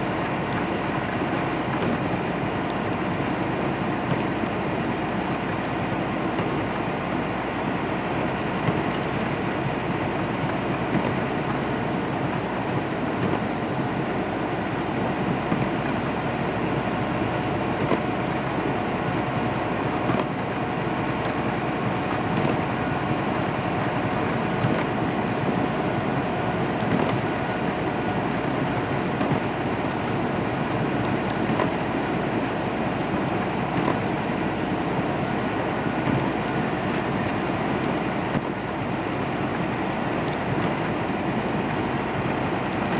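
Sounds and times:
diesel engine running: 0:00.0 - 0:42.9
tyres hissing on wet road: 0:00.0 - 0:42.9.

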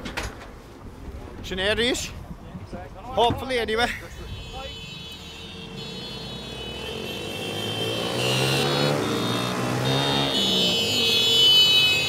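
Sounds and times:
small motorcycles revving past: 0:05.5 - 0:11.2.

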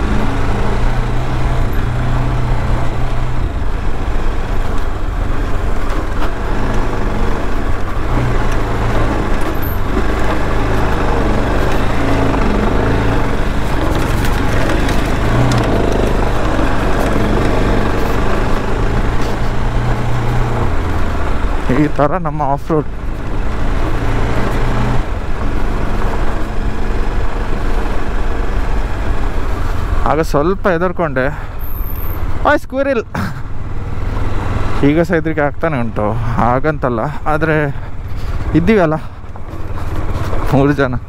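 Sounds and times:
motorcycle engine revving: 0:00.0 - 0:30.1.

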